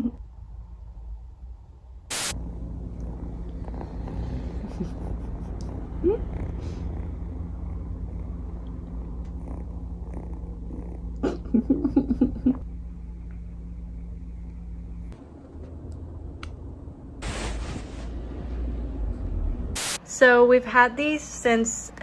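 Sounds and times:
kitten purring: 2.6 - 12.6.

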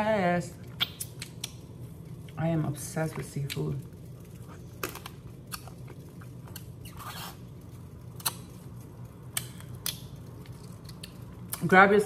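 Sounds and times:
steady low hum: 0.0 - 12.0
sharp snaps: 0.8 - 1.6, 8.2 - 8.5, 9.3 - 10.2.

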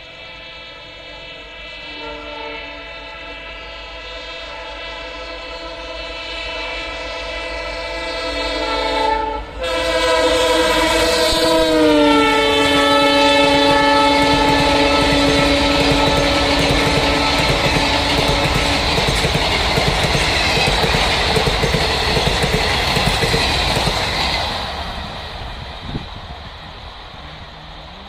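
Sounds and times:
train rumbling on rails: 0.0 - 28.0
locomotive horn blast: 0.1 - 19.2.

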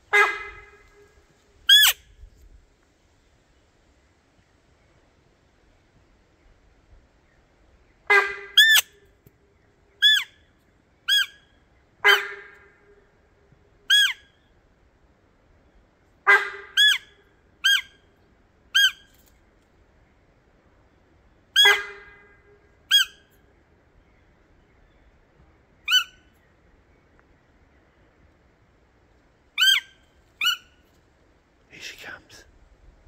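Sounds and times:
deer call squeaky bleats: 13.9 - 14.2, 16.8 - 17.0, 29.6 - 30.6.

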